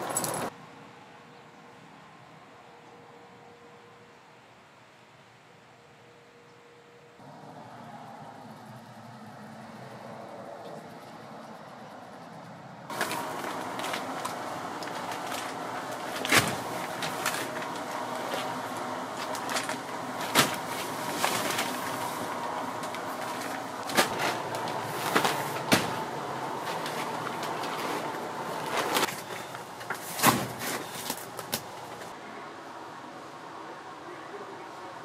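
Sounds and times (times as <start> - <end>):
steady hum: 11.5 - 33.5
sacks thudding on metal floor: 12.9 - 29.3, 29.9 - 31.2.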